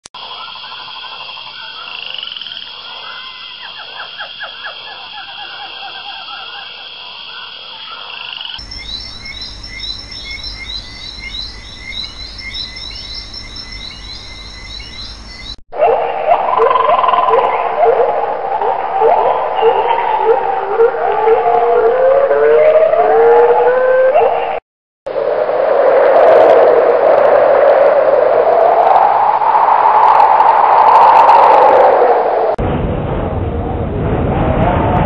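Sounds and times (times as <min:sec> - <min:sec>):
frogs croaking in chorus: 0:00.2 - 0:15.6
rapidly repeated frog calls: 0:00.2 - 0:15.6.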